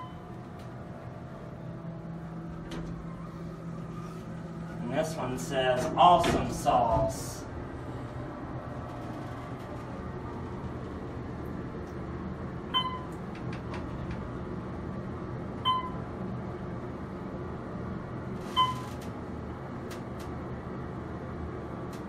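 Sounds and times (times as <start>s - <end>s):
elevator chime beeps: 0.0s - 0.4s, 12.7s - 13.2s, 15.6s - 16.0s, 18.5s - 19.0s
elevator low hum: 0.0s - 22.0s.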